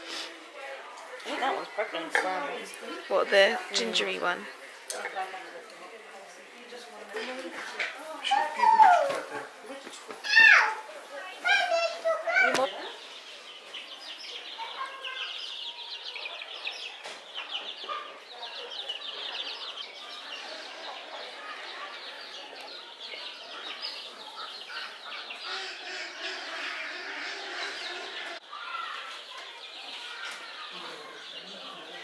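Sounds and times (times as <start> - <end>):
flock of hens clucking: 16.0 - 28.4.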